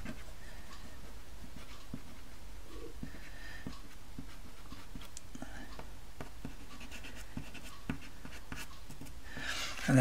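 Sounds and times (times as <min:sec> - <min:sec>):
pastel stick scratching paper: 0:06.3 - 0:09.1.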